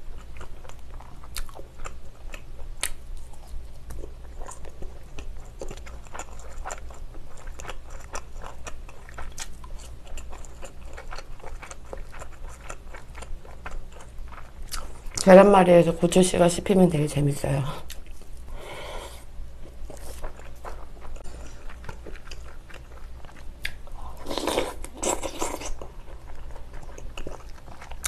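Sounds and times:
chewing and biting food: 0:00.0 - 0:15.2, 0:19.6 - 0:28.0.

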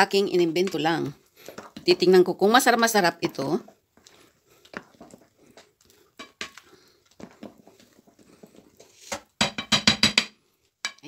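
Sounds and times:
spatula scraping batter in bowl: 0:03.6 - 0:09.4.

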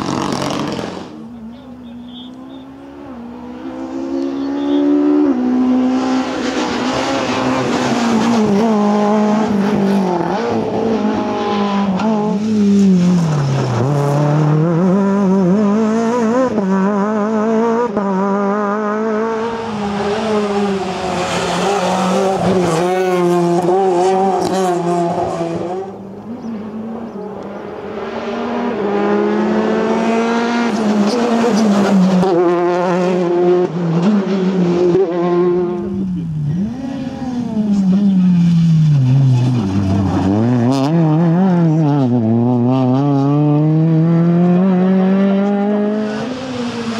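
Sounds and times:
rally car engines at high revs: 0:00.0 - 0:46.9.

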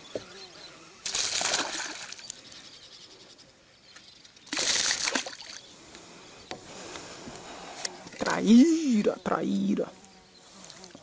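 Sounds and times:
fish splashing in water: 0:01.0 - 0:02.4, 0:04.5 - 0:05.6.

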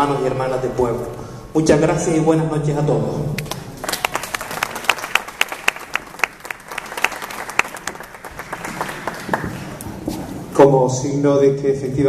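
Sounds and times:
audience applauding: 0:03.4 - 0:10.0
person clapping nearby: 0:03.4 - 0:10.0.

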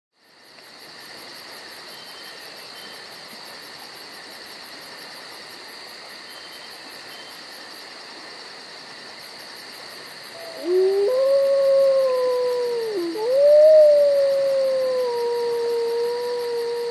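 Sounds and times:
crickets chirping: 0:00.2 - 0:16.9
wolf-like howl: 0:10.4 - 0:16.9.

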